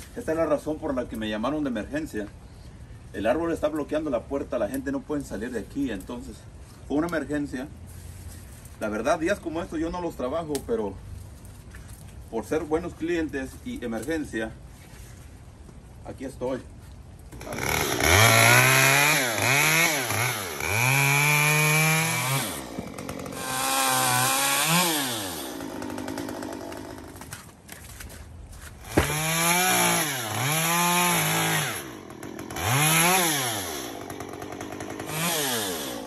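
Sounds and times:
chainsaw revving and cutting: 0:17.3 - 0:27.4, 0:28.8 - 0:36.0.

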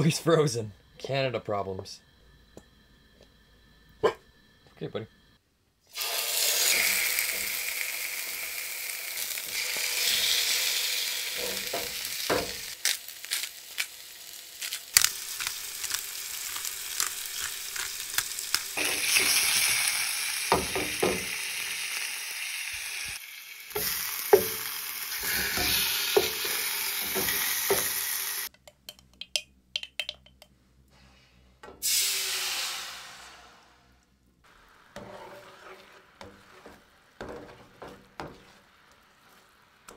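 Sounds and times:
fish sizzling in oil: 0:05.9 - 0:28.5, 0:34.5 - 0:39.9
utensil clicking against pan: 0:28.5 - 0:30.5.

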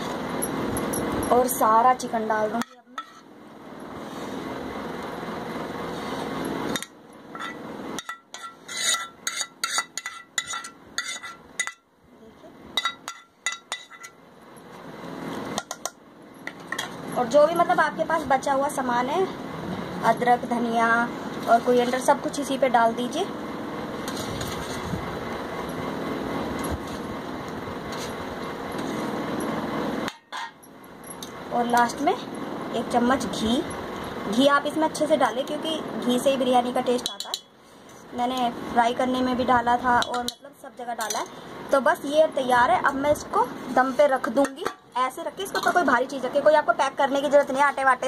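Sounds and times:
ladle scraping a frying pan: 0:03.0 - 0:03.3, 0:07.3 - 0:11.8.

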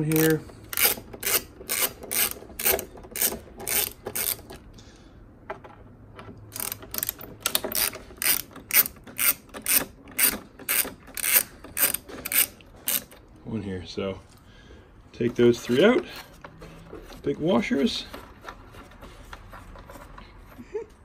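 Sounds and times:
hand ratchet clicking: 0:00.0 - 0:04.6, 0:06.5 - 0:13.2.

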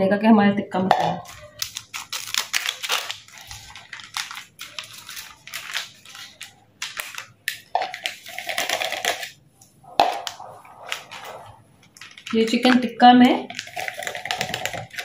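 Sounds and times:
scissors cutting plastic: 0:01.2 - 0:09.4, 0:13.5 - 0:15.0
plastic packets crinkling: 0:01.2 - 0:15.0.

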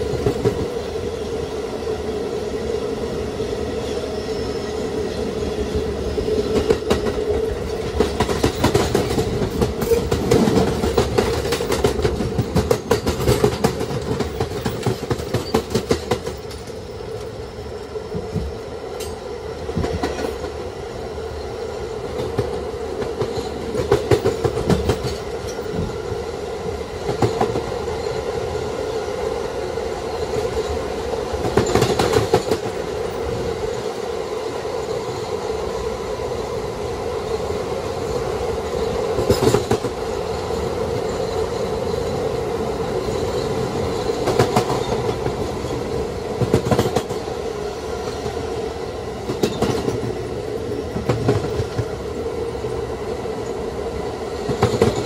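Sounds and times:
subway car droning: 0:00.0 - 0:55.0
wheels clicking over rail joints: 0:06.4 - 0:17.4, 0:22.1 - 0:26.0, 0:31.4 - 0:32.8, 0:49.2 - 0:50.2.

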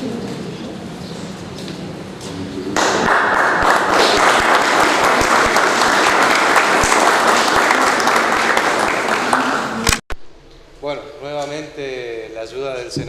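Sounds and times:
audience applauding: 0:02.8 - 0:10.0.

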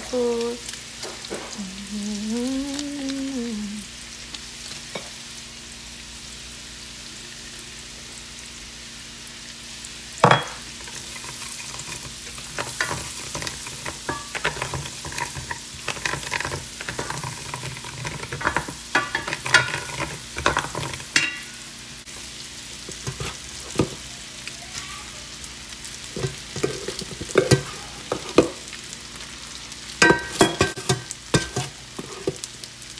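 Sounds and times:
garlic and pepper sizzling in pot: 0:00.0 - 0:32.9
wooden spoon scraping pot: 0:10.8 - 0:21.2, 0:22.9 - 0:24.0, 0:26.2 - 0:28.5.

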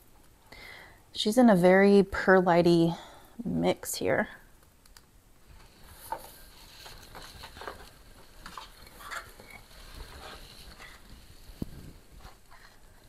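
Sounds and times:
potting soil rustling: 0:05.6 - 0:13.0.

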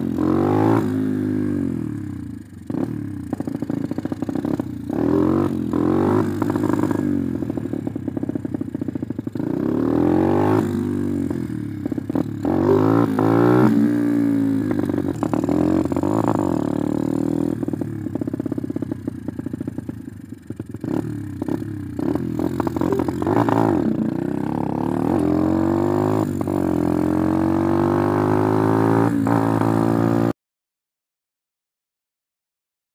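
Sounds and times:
dirt bike engine revving: 0:00.0 - 0:02.0, 0:02.7 - 0:07.4, 0:09.4 - 0:11.3, 0:12.1 - 0:17.7, 0:20.8 - 0:30.3.

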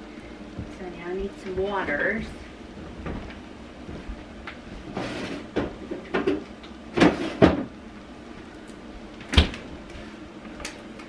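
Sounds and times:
knocks inside refrigerator: 0:07.0 - 0:07.7.

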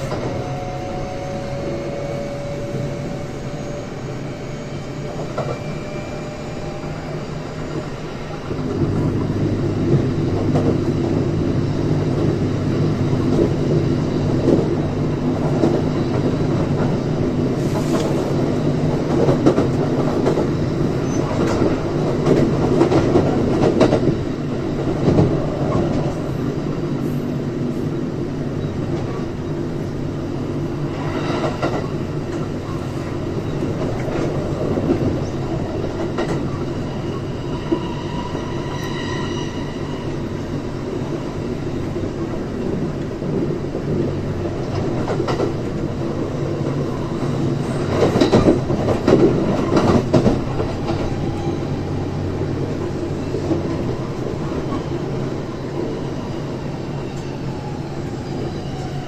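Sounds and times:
faint high squeal: 0:00.0 - 0:08.0, 0:36.4 - 0:40.6
train wheels rumbling on rail: 0:00.0 - 0:59.0
train clatter: 0:07.8 - 0:26.4, 0:30.9 - 0:37.9, 0:41.0 - 0:55.9.

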